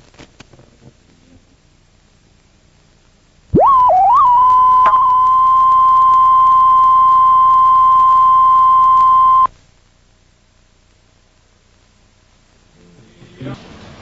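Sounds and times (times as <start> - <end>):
high-pitched tone: 3.6 - 9.5.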